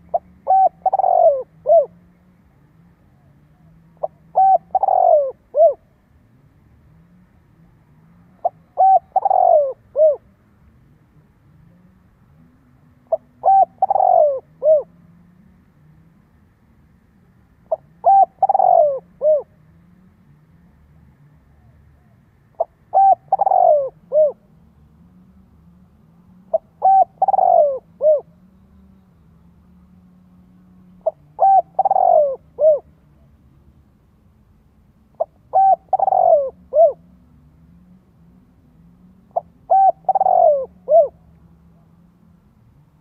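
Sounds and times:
dove cooing: 0:00.0 - 0:06.0, 0:07.6 - 0:10.3, 0:11.7 - 0:15.1, 0:17.6 - 0:19.6, 0:21.5 - 0:24.6, 0:26.4 - 0:28.5, 0:30.9 - 0:33.4, 0:35.1 - 0:37.3, 0:39.1 - 0:41.9.

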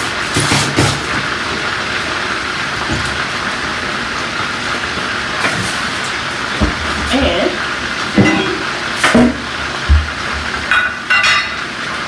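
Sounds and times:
chicken sizzling in a skillet: 0:00.0 - 0:12.0.

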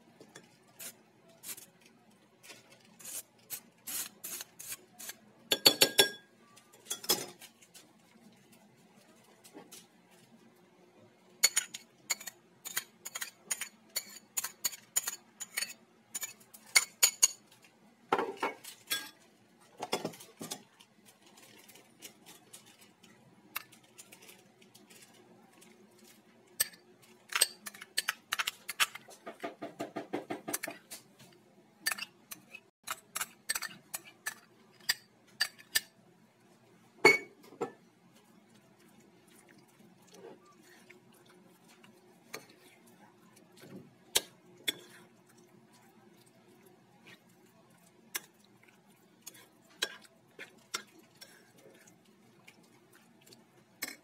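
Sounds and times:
spoon clinking against bowls: 0:05.5 - 0:07.4, 0:11.4 - 0:17.4, 0:37.0 - 0:37.7.

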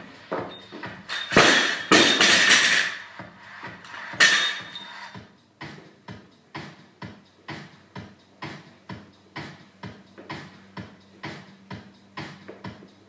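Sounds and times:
barbell dropped thud: 0:01.1 - 0:03.0
bar and plates rattling: 0:01.1 - 0:03.1, 0:04.2 - 0:04.9
metal bar clank: 0:04.2 - 0:04.8.

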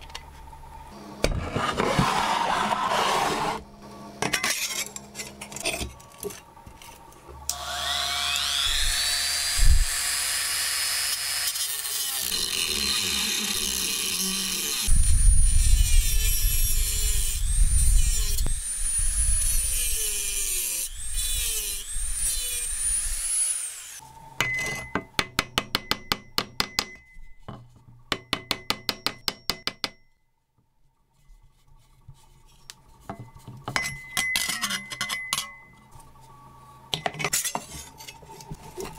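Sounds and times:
rotary tool whine cutting wood: 0:07.5 - 0:24.1.

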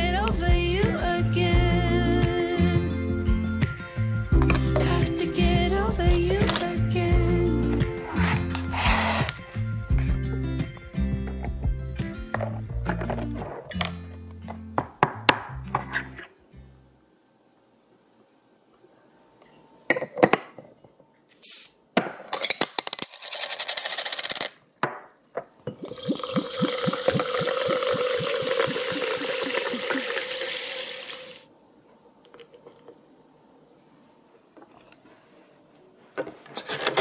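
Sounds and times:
carbonated water pouring and fizzing: 0:25.7 - 0:31.4.

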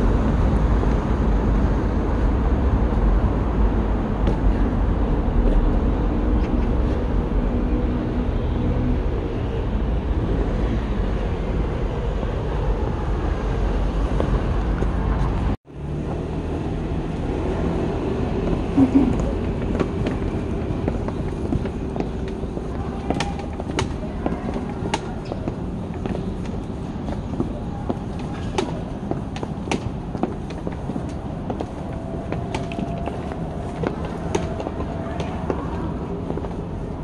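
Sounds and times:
distant traffic: 0:00.0 - 0:37.0
low street rumble: 0:00.0 - 0:37.0
faint voices: 0:18.6 - 0:37.0.

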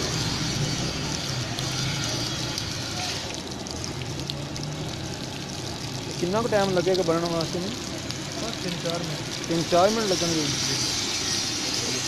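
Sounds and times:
batter sizzling in hot oil: 0:00.0 - 0:03.5, 0:08.3 - 0:12.0.

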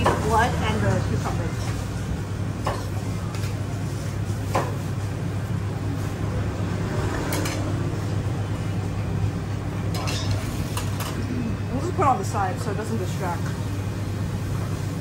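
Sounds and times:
metal spoon clinking on plate: 0:10.0 - 0:10.4.

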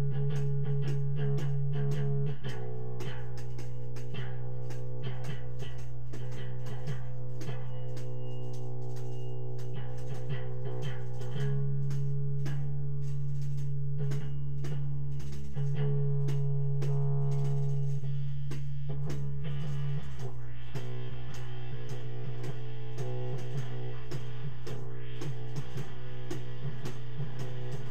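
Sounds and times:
instrumental jam music: 0:00.0 - 0:27.9.

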